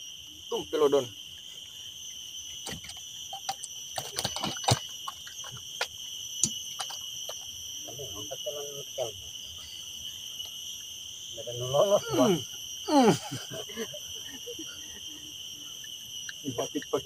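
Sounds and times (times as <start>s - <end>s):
high-pitched insect drone: 0.0s - 17.0s
sharp clicks and knocks: 2.6s - 7.5s.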